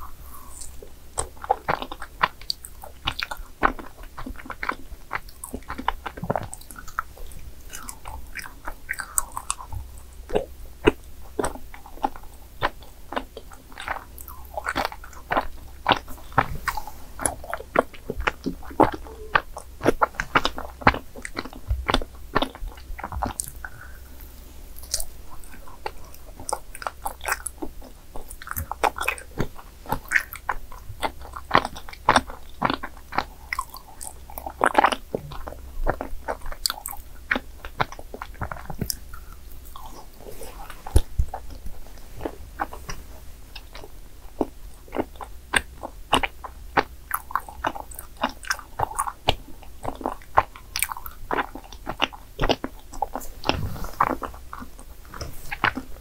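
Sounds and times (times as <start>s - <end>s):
biting and chewing rice cakes: 0.0s - 56.0s
wet mouth clicks: 7.7s - 43.0s, 43.6s - 56.0s.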